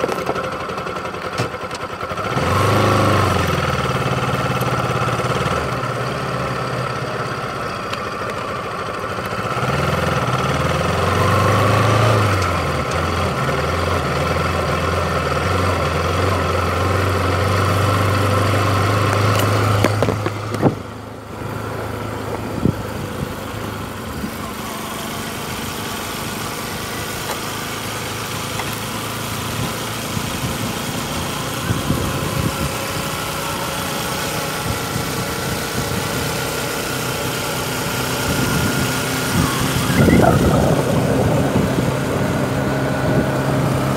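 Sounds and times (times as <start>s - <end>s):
motorcycle engine running: 0.0s - 43.9s
rushing wind and road noise: 17.0s - 24.7s, 27.1s - 43.9s.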